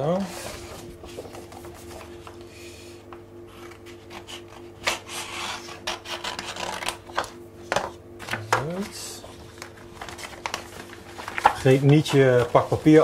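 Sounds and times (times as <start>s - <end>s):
paper sheets rustling: 0.3s - 2.5s, 8.2s - 13.0s.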